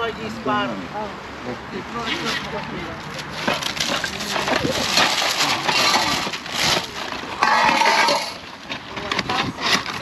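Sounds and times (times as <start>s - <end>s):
metal scraping: 2.0s - 10.0s
packaging crinkling and rustling: 2.1s - 10.0s.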